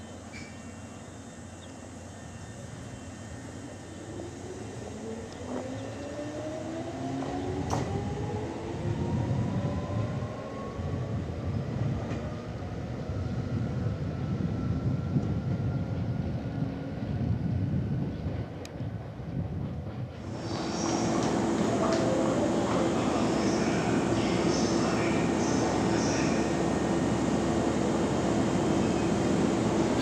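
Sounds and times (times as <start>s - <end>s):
wheels rumbling on rail: 0.0s - 30.0s
electric train motor whine: 20.3s - 30.0s.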